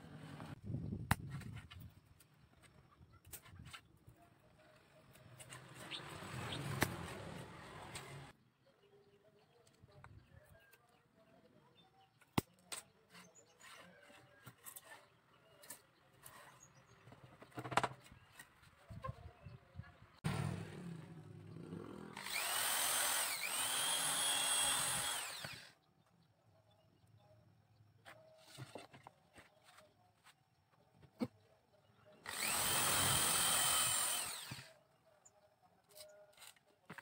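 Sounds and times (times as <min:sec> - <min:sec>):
electric hand drill whining: 0:22.2 - 0:25.8, 0:32.2 - 0:34.8.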